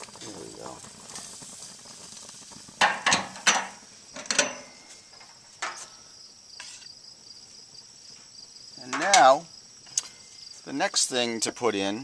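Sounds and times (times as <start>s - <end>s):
crickets chirping: 0.0s - 12.0s
utensil clanking on cookware: 2.8s - 5.0s.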